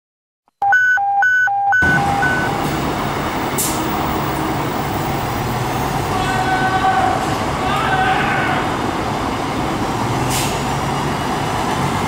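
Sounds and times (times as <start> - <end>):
two-tone siren: 0.6 - 2.5
diesel engine running: 1.8 - 7.7, 8.4 - 12.0.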